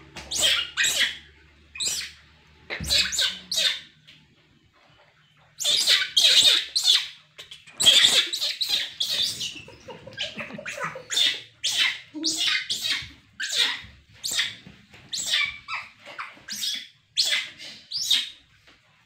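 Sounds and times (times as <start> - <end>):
baby monkey screaming: 0.2 - 3.9, 5.6 - 7.2, 7.8 - 18.4.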